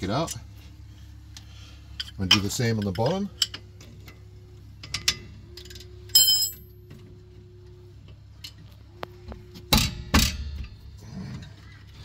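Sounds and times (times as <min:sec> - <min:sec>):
wrenches clinking on metal: 0:04.8 - 0:06.7.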